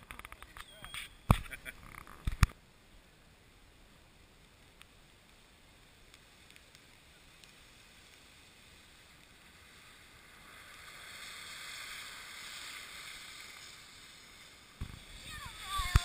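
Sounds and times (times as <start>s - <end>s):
body sliding on snow: 5.4s - 16.0s.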